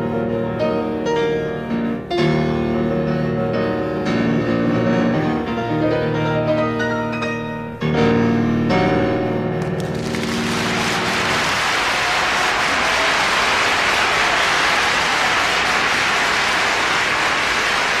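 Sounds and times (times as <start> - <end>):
piano chord: 0.0 - 11.6
audience applauding: 9.6 - 18.0.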